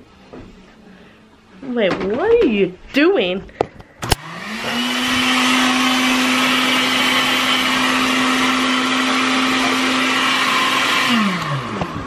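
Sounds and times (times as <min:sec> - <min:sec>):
blender motor whining: 0:04.0 - 0:12.0.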